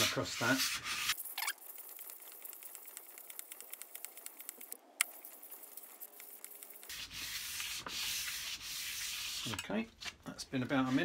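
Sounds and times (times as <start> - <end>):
gritty scratching of plane on sandpaper: 0.0 - 1.2, 5.2 - 9.6, 10.7 - 11.0.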